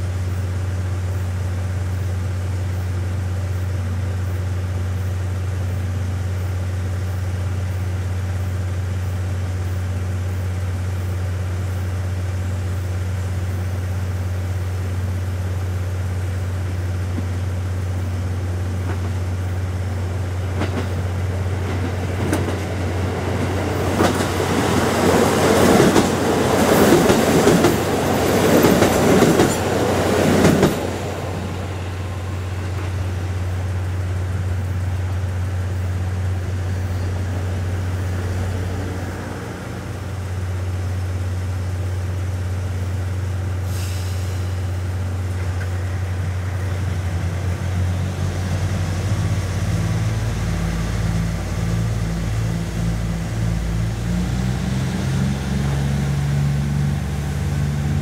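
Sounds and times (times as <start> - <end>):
diesel railcar idling: 0.0 - 58.0
diesel train passing at speed: 0.0 - 58.0
brief hiss: 43.5 - 46.6.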